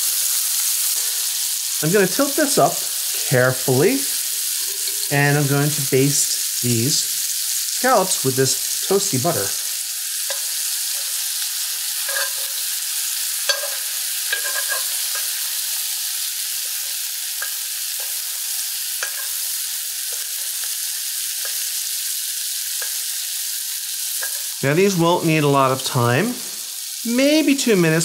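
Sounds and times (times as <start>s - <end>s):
scallops and butter sizzling in skillet: 0.0s - 28.0s
metal spoon clicking against pan: 13.5s - 15.4s, 19.0s - 19.4s.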